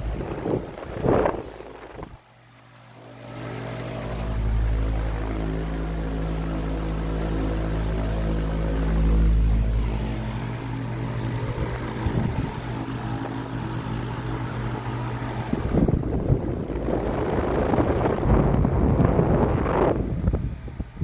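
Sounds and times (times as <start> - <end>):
fan airflow buffeting microphone: 0.0 - 21.0
fan motor humming: 0.0 - 21.0.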